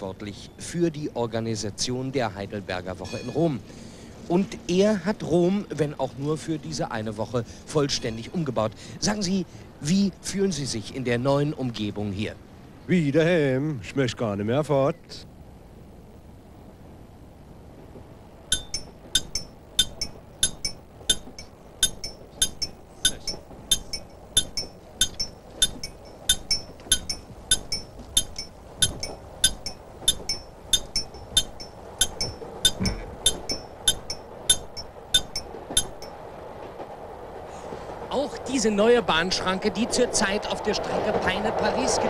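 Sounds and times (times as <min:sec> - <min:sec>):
level crossing bell ringing: 0:18.5 - 0:36.2.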